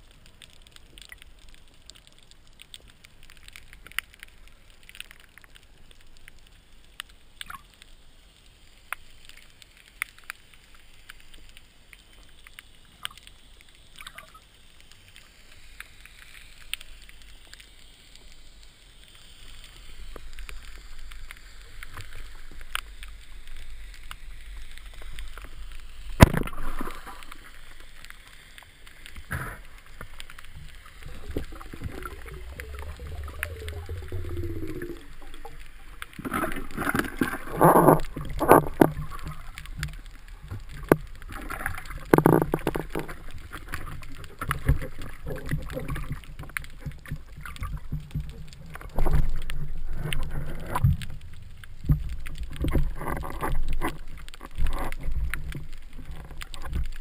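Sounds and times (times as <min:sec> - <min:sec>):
low rush of water: 0:19.4 - 0:57.0
underwater clicks: 0:19.6 - 0:57.0.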